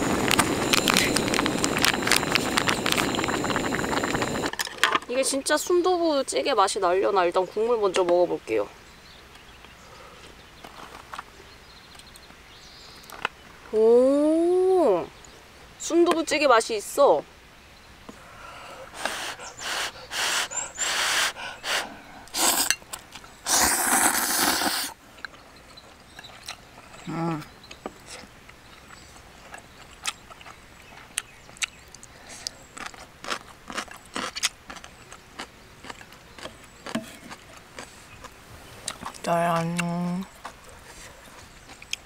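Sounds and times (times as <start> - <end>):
noodle slurping: 18.9 - 22.8, 23.4 - 25.0.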